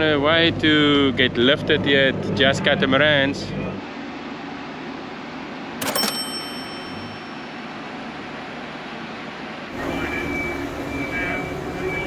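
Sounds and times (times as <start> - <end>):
low background hum: 0.0 - 12.0
bell-like coin ding: 5.8 - 7.7.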